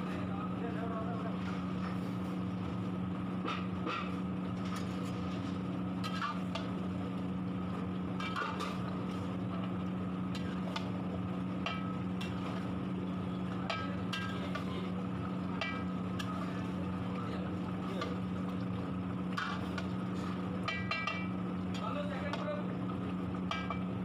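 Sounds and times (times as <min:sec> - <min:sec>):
steady low hum: 0:00.0 - 0:24.0
metal spatula scraping a pot: 0:13.7 - 0:14.8.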